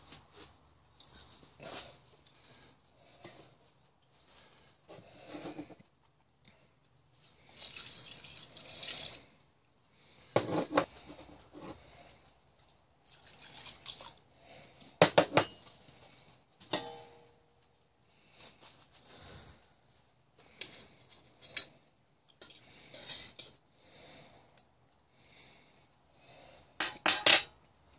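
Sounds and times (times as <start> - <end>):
water pouring into a pot: 7.4 - 9.4, 13.0 - 14.2
clinks and knocks on metal pot: 16.7 - 17.2, 26.8 - 27.5.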